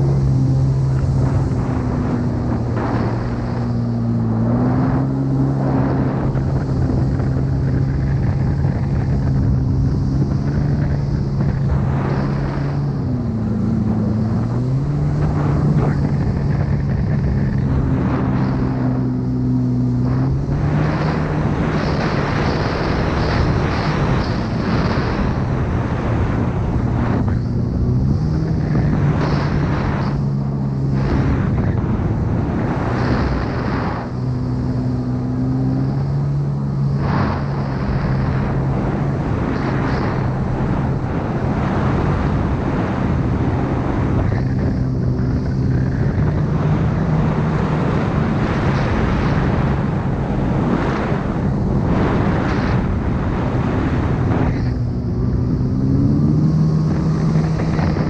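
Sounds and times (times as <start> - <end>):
jet ski engine revving: 0.0 - 58.0.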